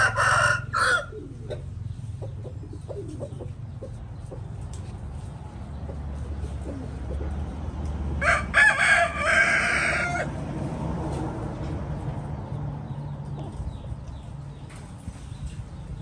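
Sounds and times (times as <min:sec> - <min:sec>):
rooster crowing: 0:00.0 - 0:01.3, 0:08.2 - 0:10.4.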